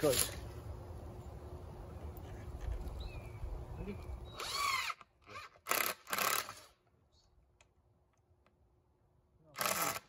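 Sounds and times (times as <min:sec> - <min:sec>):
screw gun driving screw into wood: 0:09.6 - 0:10.0.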